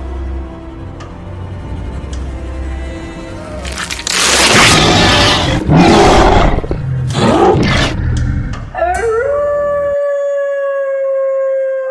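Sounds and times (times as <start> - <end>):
dog howling: 8.8 - 11.9.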